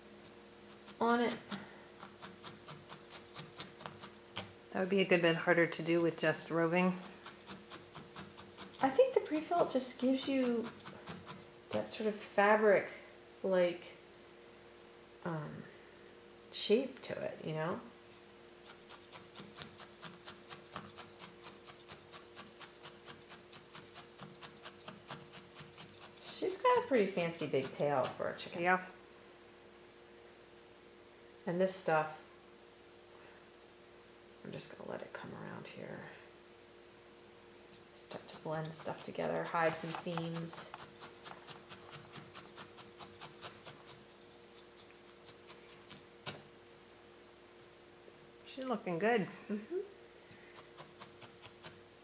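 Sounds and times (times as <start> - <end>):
felting needle poking wool: 0.7 - 4.6, 5.6 - 12.0, 18.6 - 28.2, 37.7 - 46.5.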